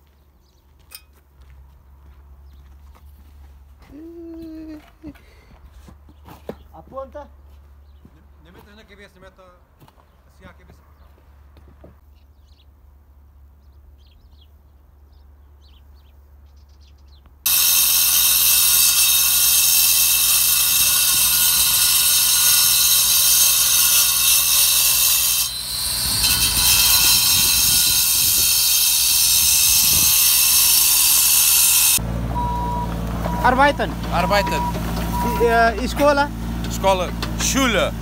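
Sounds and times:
angle grinder cutting concrete: 0:17.5 - 0:32.6, 0:33.3 - 0:38.0.

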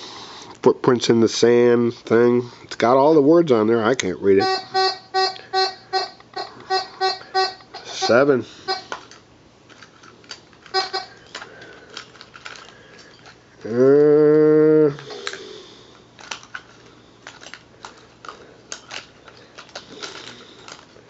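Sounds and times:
metal detector buzzy tone: 0:04.4 - 0:09.0.

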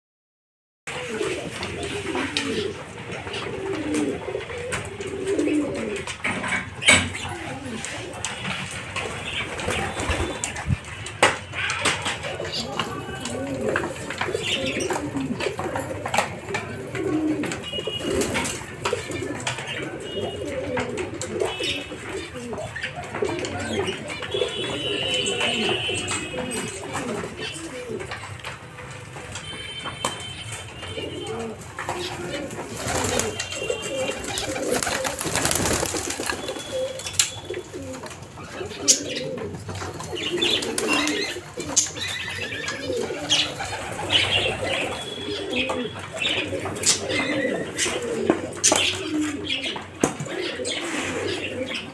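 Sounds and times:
pigeons cooing: 0:00.9 - 0:11.0, 0:11.6 - 0:29.8, 0:30.4 - 0:51.9
wings flapping: 0:31.9 - 0:37.6
beaks pecking on wood: 0:32.8 - 0:37.6.

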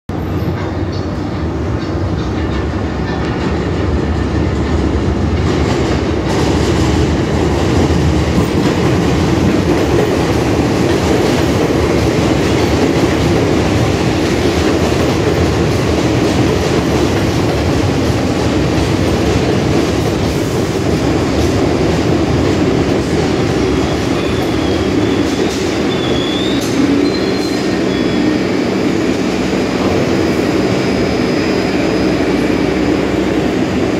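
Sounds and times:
train wheels rumbling on rails: 0:00.1 - 0:33.9
brake squeal: 0:23.8 - 0:28.4.

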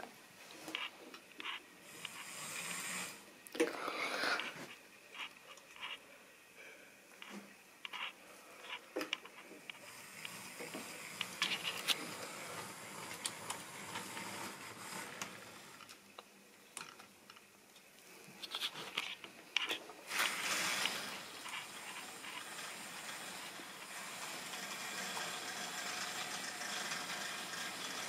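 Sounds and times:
model train running on track: 0:01.8 - 0:03.2, 0:09.8 - 0:16.0, 0:20.1 - 0:28.0.

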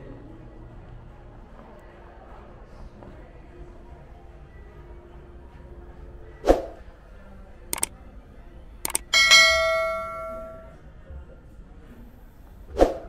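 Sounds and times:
mouse clicks: 0:08.9 - 0:09.1
notification bell ding: 0:08.9 - 0:10.8.

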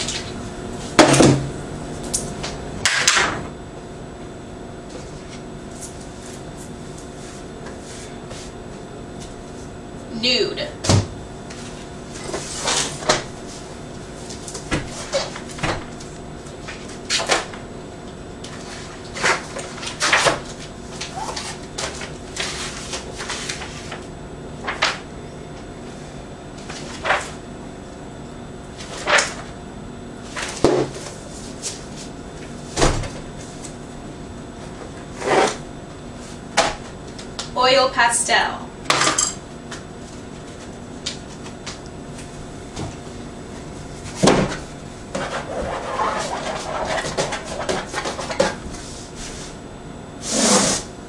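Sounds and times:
faint hum: 0:00.0 - 0:51.0
paper rustling: 0:18.6 - 0:24.0.

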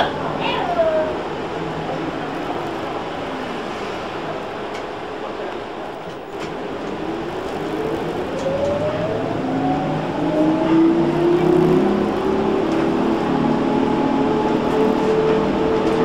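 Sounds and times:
electric motor whine rising: 0:07.1 - 0:15.3.

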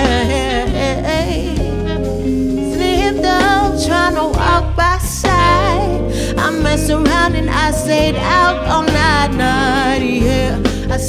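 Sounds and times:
drum kit: 0:00.0 - 0:11.0
electric bass: 0:00.0 - 0:11.0
saxophone: 0:00.0 - 0:11.0
woman singing: 0:00.0 - 0:11.0.

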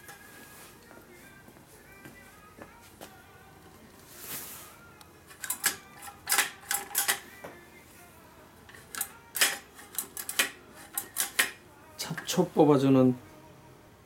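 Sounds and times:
weed puller clicking and clacking: 0:05.3 - 0:07.2, 0:08.7 - 0:11.6.

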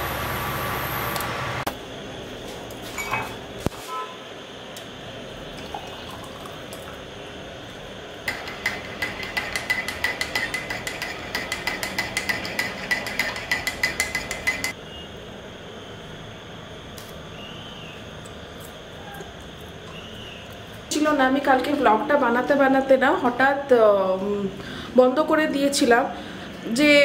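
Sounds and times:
tea pouring into mug: 0:05.5 - 0:07.0
spoon clinking in mug: 0:08.3 - 0:14.8.

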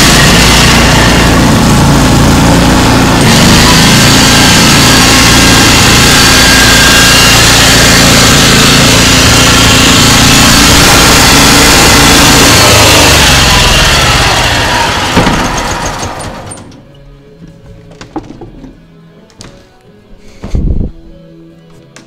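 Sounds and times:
small engine running loud: 0:00.0 - 0:16.5.

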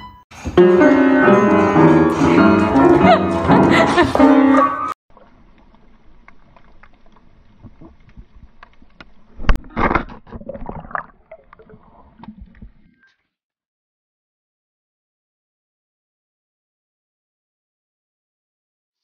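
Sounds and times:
muffled underwater water noise: 0:05.1 - 0:13.0.

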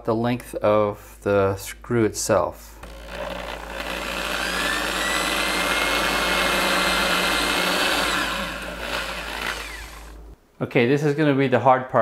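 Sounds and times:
electric drill drilling into wood: 0:02.8 - 0:10.4.

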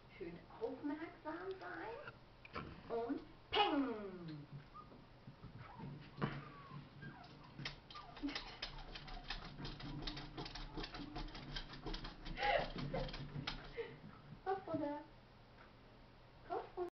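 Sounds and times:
dog claws clicking and scuffing: 0:07.0 - 0:13.8.

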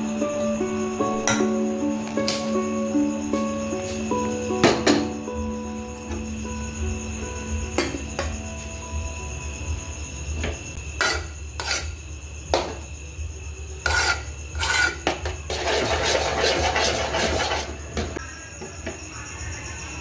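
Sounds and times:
metal spoon scraping a pot: 0:11.0 - 0:12.0, 0:13.8 - 0:18.0.

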